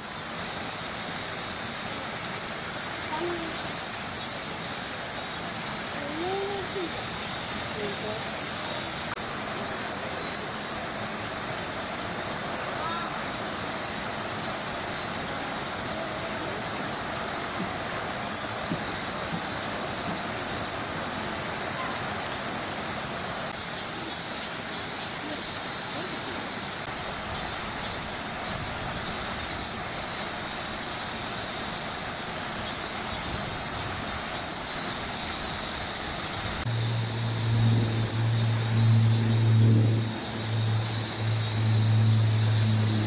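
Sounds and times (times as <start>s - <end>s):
steady outdoor hiss: 0.0s - 43.0s.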